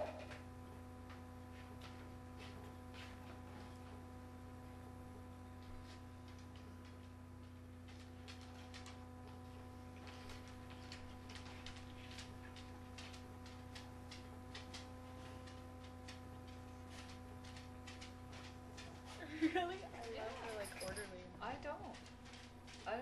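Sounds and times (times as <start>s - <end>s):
electrical hum: 0.0s - 23.0s
light clicks and ticks: 5.6s - 21.2s.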